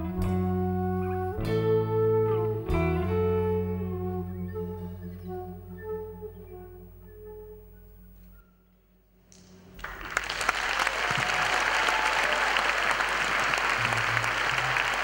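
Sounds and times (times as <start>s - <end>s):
audience applause: 9.8s - 15.0s.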